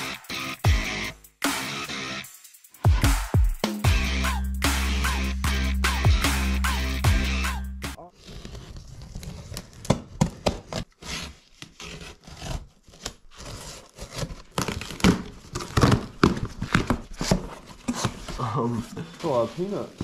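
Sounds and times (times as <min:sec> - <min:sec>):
objects being handled: 0:12.8 - 0:20.0.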